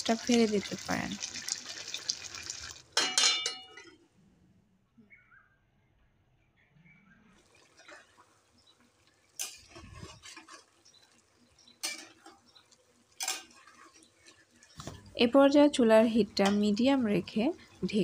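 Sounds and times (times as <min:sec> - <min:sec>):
spatula clinking on metal pot: 0:03.0 - 0:04.0, 0:11.8 - 0:12.4, 0:13.2 - 0:14.0, 0:16.4 - 0:16.8
spatula scraping pot: 0:09.4 - 0:15.1.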